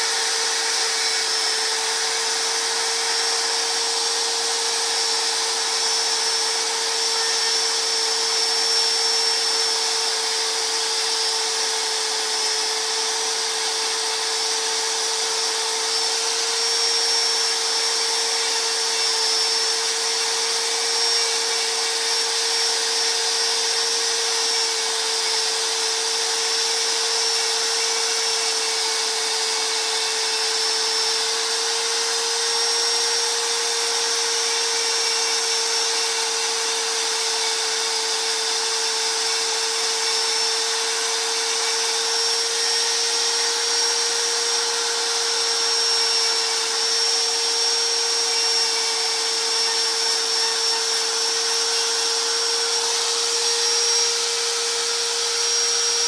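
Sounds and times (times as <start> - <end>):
power sander running: 0.0 - 56.0.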